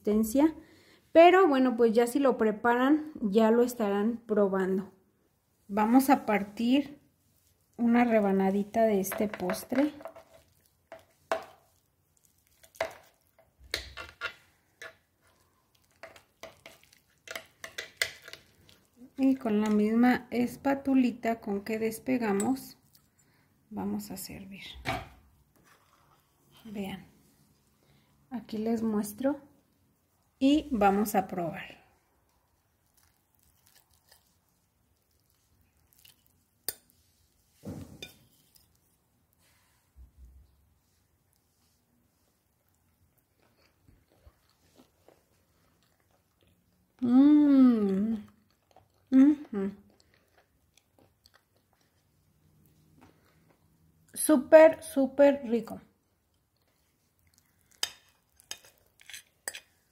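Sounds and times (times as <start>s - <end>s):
cutlery scraping on a plate: 13.8s - 15.0s, 57.8s - 59.8s.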